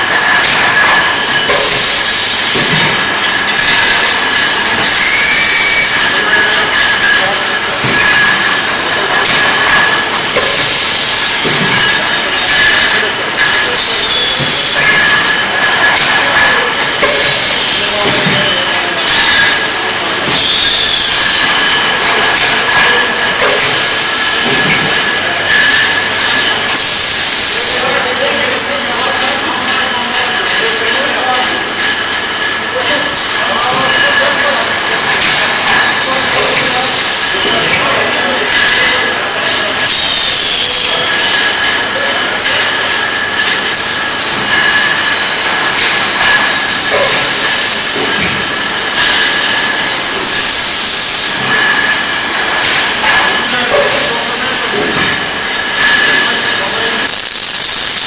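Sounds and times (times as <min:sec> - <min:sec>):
packing machine running: 0:00.0 - 0:58.0
hiss: 0:50.2 - 0:51.4, 0:57.0 - 0:58.0.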